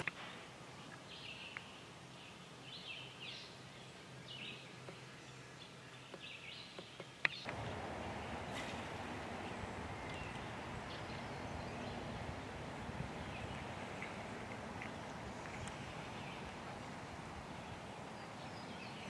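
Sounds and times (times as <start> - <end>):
background hiss: 0.0 - 19.0
bird chirps: 7.4 - 19.0.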